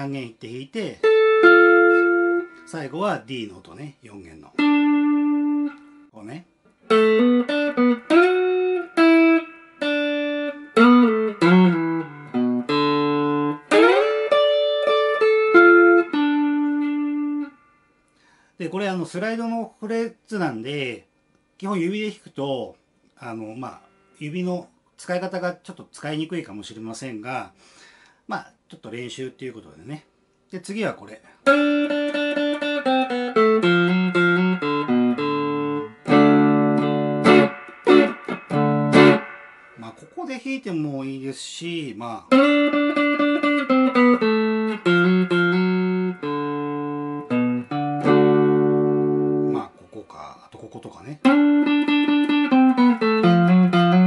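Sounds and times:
clean electric slide guitar: 1.1s - 2.7s, 6.8s - 17.6s, 31.4s - 40.2s, 42.4s - 49.6s, 51.3s - 54.0s.

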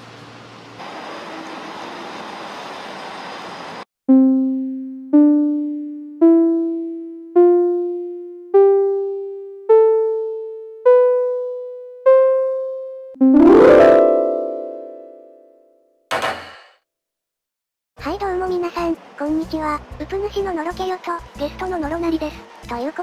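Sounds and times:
sustained chord: 4.1s - 15.8s
rising struck notes jingle: 10.9s - 15.5s.

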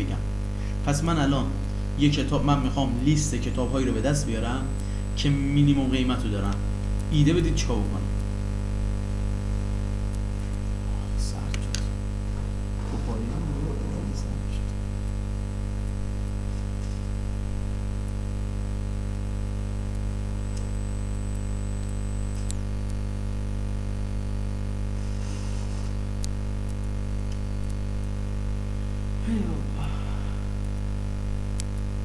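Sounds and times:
electrical mains hum: 0.0s - 32.0s
faint voice: 29.2s - 30.0s.

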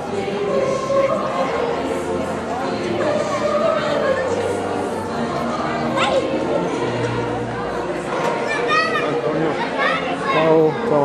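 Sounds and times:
choir singing long notes: 0.0s - 10.2s
music: 0.0s - 11.0s.

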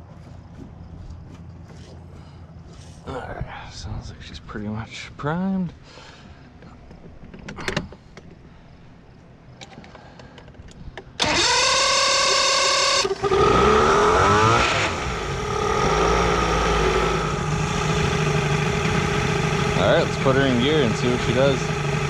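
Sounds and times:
electric starter cranking: 11.2s - 22.0s
outboard engine revving and idling: 11.2s - 22.0s.

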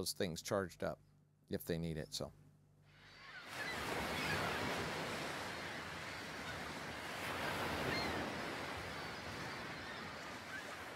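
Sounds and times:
ocean surf washing in: 3.0s - 10.9s.

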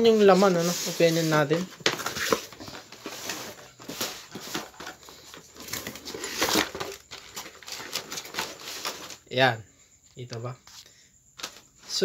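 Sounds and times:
cardboard boxes scraping on table: 0.0s - 9.2s.

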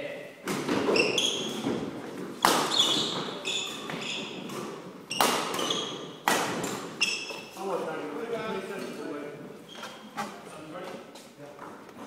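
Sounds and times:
shoes squeaking on wooden floor: 0.6s - 12.0s
shuttlecock struck by rackets: 2.4s - 3.0s, 4.5s - 6.9s.

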